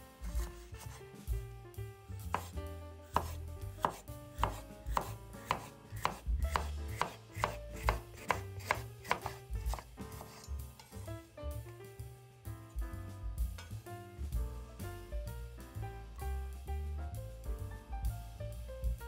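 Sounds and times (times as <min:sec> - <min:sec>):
knife slicing on wooden cutting board: 0:00.2 - 0:01.0, 0:02.2 - 0:11.1.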